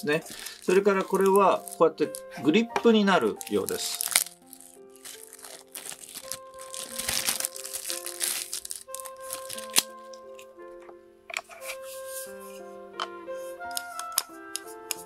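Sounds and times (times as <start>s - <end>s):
plastic bag crinkling: 0.0s - 10.4s
soft background music: 0.0s - 15.0s.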